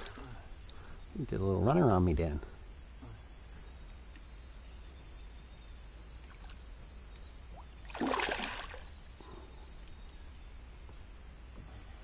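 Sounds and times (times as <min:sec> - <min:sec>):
cicadas singing: 0:00.0 - 0:12.0
fish splashing at water surface: 0:07.8 - 0:08.9.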